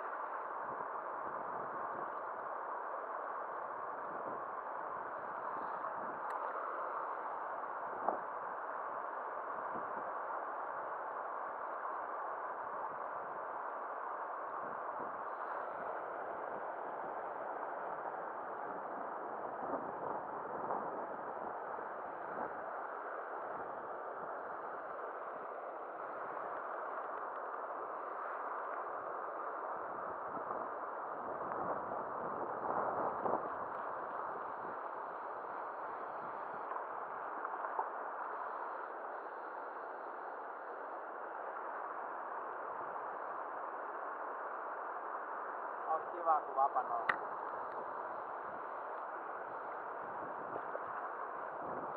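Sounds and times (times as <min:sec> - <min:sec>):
faint ticks: 0:05.6 - 0:06.6.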